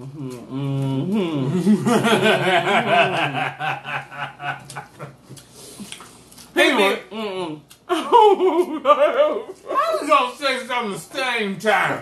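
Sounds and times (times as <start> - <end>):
man laughing: 1.4 - 5.2, 7.9 - 10.0.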